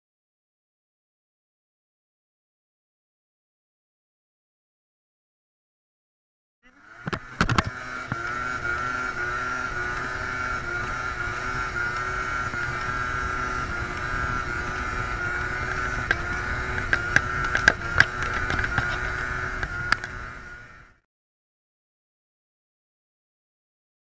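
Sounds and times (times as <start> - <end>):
scooter engine running: 6.6 - 21.0.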